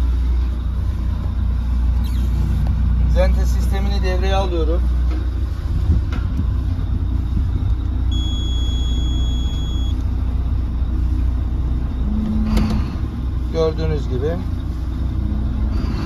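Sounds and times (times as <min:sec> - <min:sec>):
boat engines idling: 0:00.0 - 0:16.0
high electronic beep: 0:08.1 - 0:10.0.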